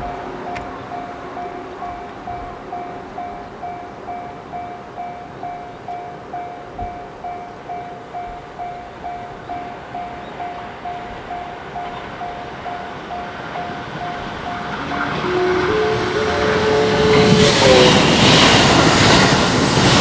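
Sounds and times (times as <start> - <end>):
railway warning bell tone: 0.0 - 20.0
electric train running: 8.2 - 20.0.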